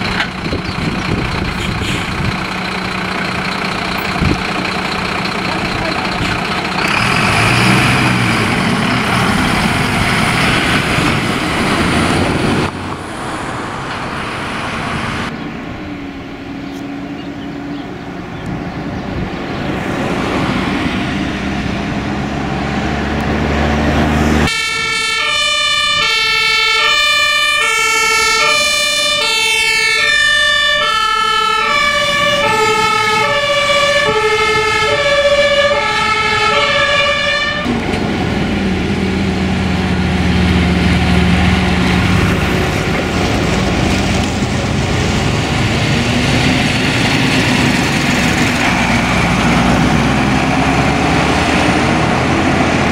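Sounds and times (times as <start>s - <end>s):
diesel engines driving past: 0.0s - 52.9s
two-tone siren: 24.4s - 37.8s.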